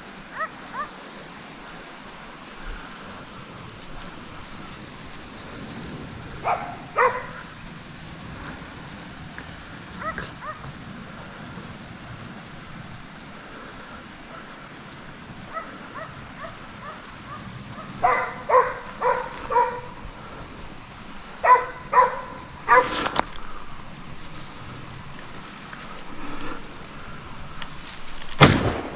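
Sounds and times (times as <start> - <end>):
dogs barking: 0.3 - 1.0, 6.4 - 7.6, 9.9 - 10.8, 15.4 - 20.0, 21.3 - 23.2.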